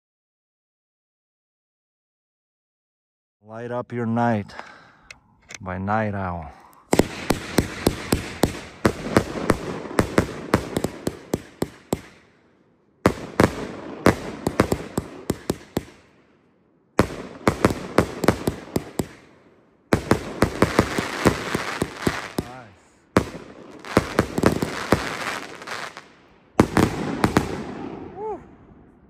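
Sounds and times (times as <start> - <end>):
fireworks crackling: 6.8 - 12.2, 19.9 - 28.4.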